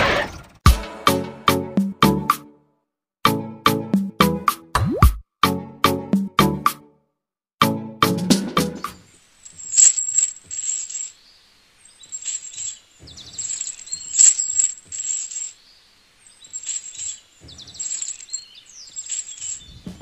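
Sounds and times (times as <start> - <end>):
small chain jingling and clinking: 9.4 - 15.7, 16.3 - 19.8.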